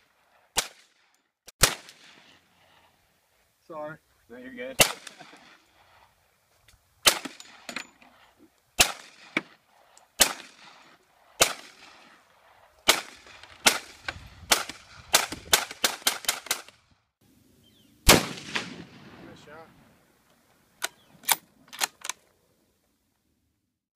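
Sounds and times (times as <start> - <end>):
rifle shots with echo: 0.6 - 0.9, 1.6 - 2.4, 4.7 - 6.0, 7.0 - 7.7, 8.8 - 9.6, 10.2 - 16.8, 18.1 - 19.8.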